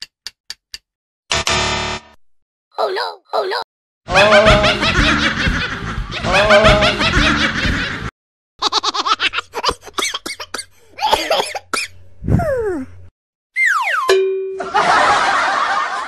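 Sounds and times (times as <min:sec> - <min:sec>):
woman laughing loudly: 0:14.6 - 0:16.0.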